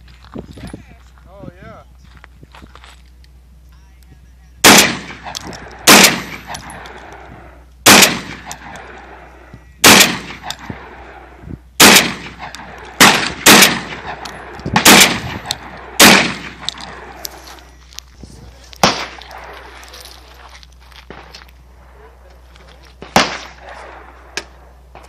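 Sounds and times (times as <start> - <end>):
shotgun shots with echo: 4.6 - 7.0, 7.8 - 9.2, 9.8 - 11.1, 11.8 - 17.2, 18.8 - 19.6, 23.0 - 24.5.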